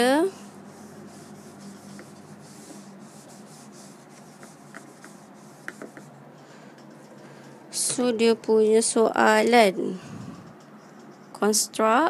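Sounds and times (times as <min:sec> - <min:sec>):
eraser rubbing on whiteboard: 0:00.4 - 0:06.1.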